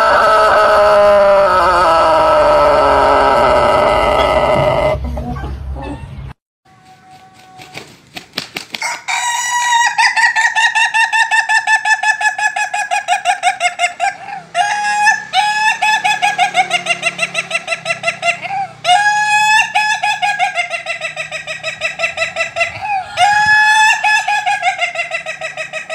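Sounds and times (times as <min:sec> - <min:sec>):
rooster crowing: 0:00.0 - 0:05.0, 0:08.8 - 0:10.6, 0:14.2 - 0:16.7, 0:22.8 - 0:25.0.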